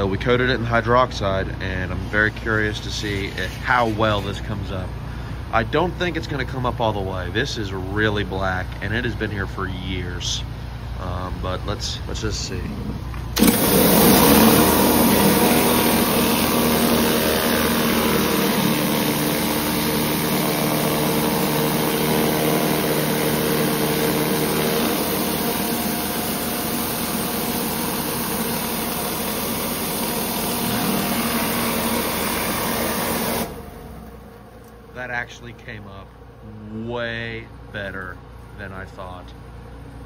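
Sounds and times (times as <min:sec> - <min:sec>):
engine-driven pump running: 0:00.0 - 0:09.3, 0:10.4 - 0:36.5
pressure washer water jet hissing: 0:13.4 - 0:34.7.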